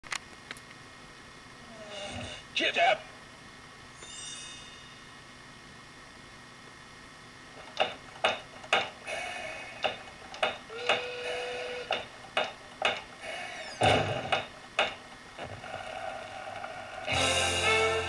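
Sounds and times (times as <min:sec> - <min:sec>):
short held tone: 0:04.0 - 0:05.1.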